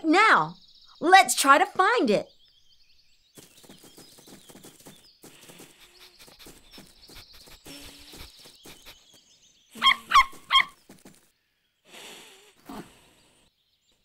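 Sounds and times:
cartoon puppy sniffing: 5.4s - 9.2s, 9.8s - 10.7s
high-pitched yapping barks: 9.8s - 10.8s.

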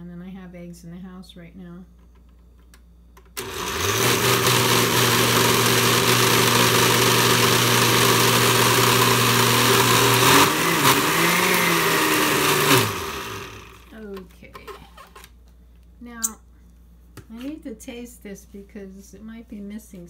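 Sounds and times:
blender motor running: 3.4s - 13.9s.

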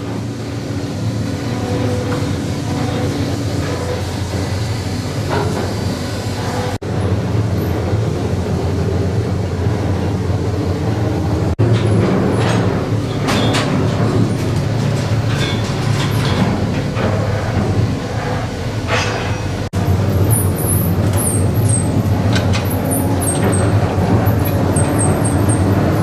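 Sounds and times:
winch humming: 0.0s - 26.0s
metallic clanks and rattles: 11.6s - 19.7s, 20.3s - 26.0s.

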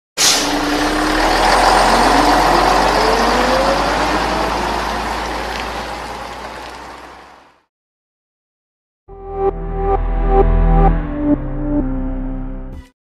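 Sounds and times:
rush of exhaust noise: 0.2s - 7.5s
bus engine accelerating: 0.2s - 7.7s.

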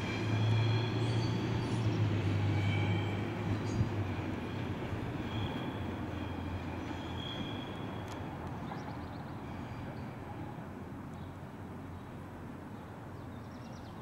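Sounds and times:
faint wheel squeal: 4.5s - 8.2s
train rumbling over switches: 7.4s - 8.9s.

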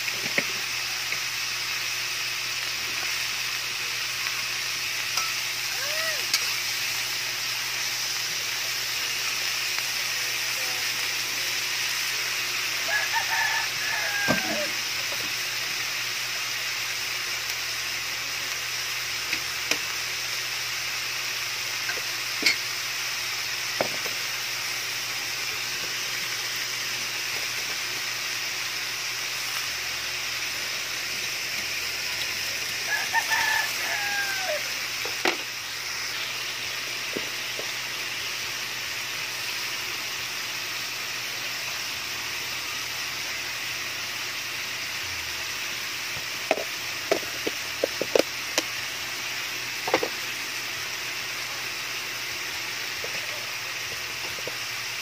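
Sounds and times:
beans sizzling in a wok: 0.0s - 55.0s
rooster crowing: 12.8s - 14.9s, 32.8s - 34.9s.

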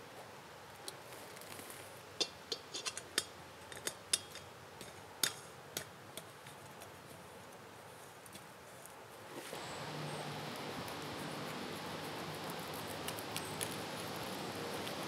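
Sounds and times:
sharp irregular clicks and snaps: 10.4s - 15.0s.

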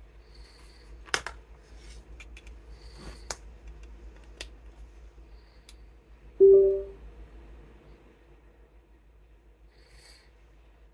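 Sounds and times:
low hum: 6.3s - 8.0s.

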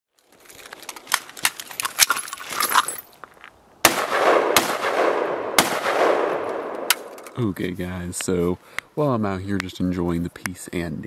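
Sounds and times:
loud single gunshots: 3.8s - 7.1s
rapid gunfire cracks: 3.8s - 7.2s.

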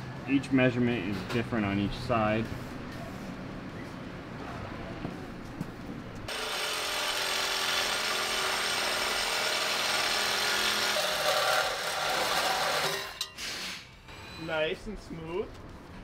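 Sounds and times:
reciprocating saw cutting metal pipe: 6.3s - 14.0s.

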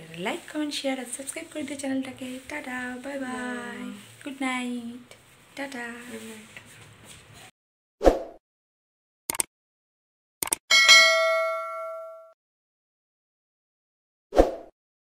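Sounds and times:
notification bell ding: 10.7s - 12.4s.

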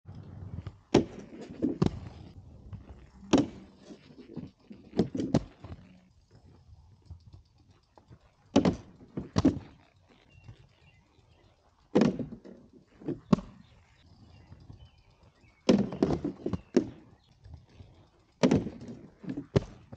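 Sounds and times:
skates rolling and scraping: 0.1s - 6.3s, 8.0s - 11.0s, 11.9s - 14.0s, 15.7s - 17.4s, 18.4s - 19.9s
inline skates knocking on ledge: 0.6s - 5.7s, 8.5s - 9.7s, 12.0s - 13.6s, 18.4s - 19.9s.

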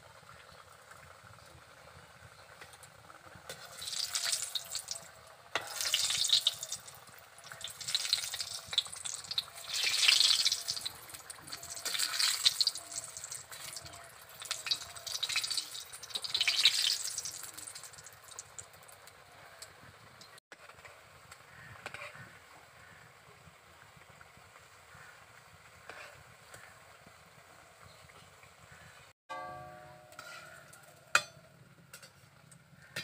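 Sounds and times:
dough frying in sizzling oil: 0.0s - 33.0s.

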